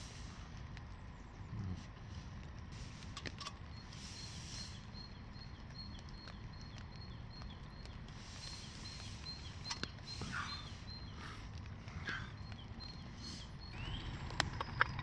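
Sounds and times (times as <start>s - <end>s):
small bird calling: 1.1s - 15.0s.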